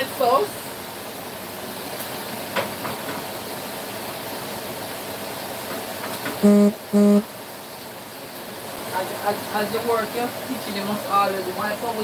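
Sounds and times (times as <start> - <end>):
short electronic beeps: 6.4 - 7.3.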